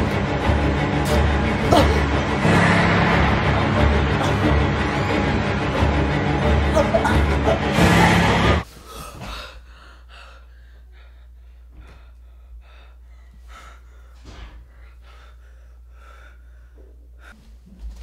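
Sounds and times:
horror music: 0.0s - 8.7s
person gasping and panting: 8.7s - 17.4s.

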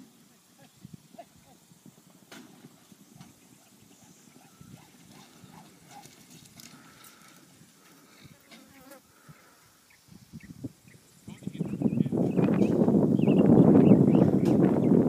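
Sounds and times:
distant horses galloping on dirt: 1.2s - 8.1s.

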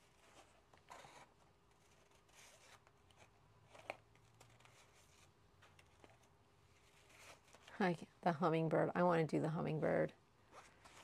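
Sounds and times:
plastic-covered cards rustling: 0.0s - 7.8s.

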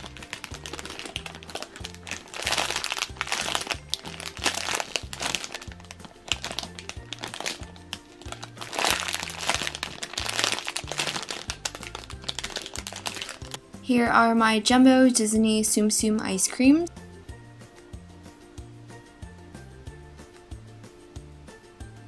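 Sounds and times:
plastic packaging crinkling: 0.0s - 13.6s
background music with bass line: 0.0s - 22.0s.

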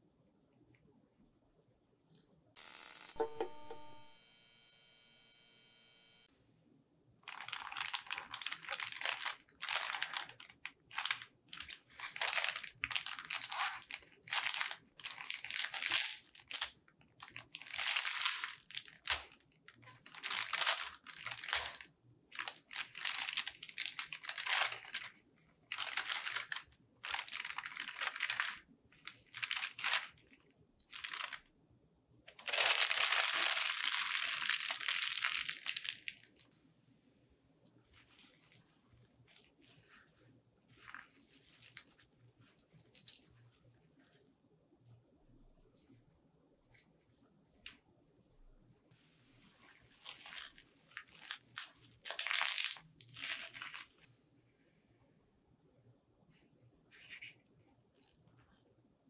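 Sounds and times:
plastic bag crinkling: 7.2s - 31.5s, 32.3s - 36.5s, 37.9s - 40.1s, 40.7s - 43.4s, 49.7s - 54.1s.

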